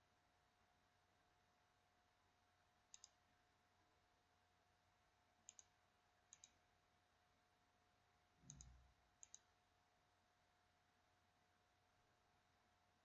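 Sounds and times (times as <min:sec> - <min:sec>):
faint steady hum: 0:00.0 - 0:13.0
computer mouse double clicks: 0:08.4 - 0:09.4.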